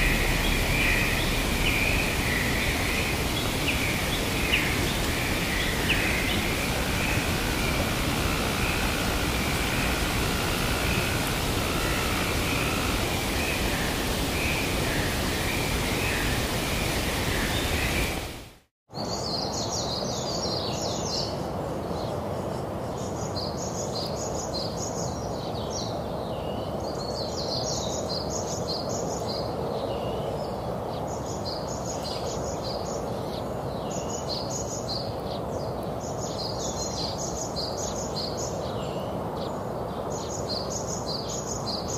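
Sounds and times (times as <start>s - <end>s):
small birds chirping: 0.0s - 18.4s
steady rushing hiss: 0.0s - 18.7s.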